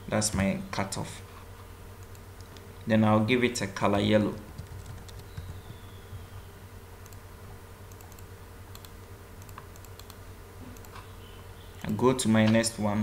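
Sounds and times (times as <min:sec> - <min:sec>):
steady low hum: 0:00.0 - 0:13.0
keyboard and mouse clicks: 0:02.0 - 0:02.7, 0:04.4 - 0:05.7, 0:07.0 - 0:07.2, 0:07.9 - 0:11.1.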